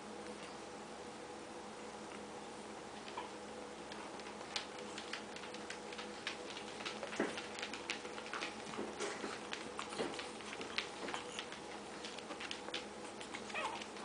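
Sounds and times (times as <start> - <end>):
faint steady hum: 0.0 - 14.0
puppy chewing and pawing toy: 3.0 - 14.0.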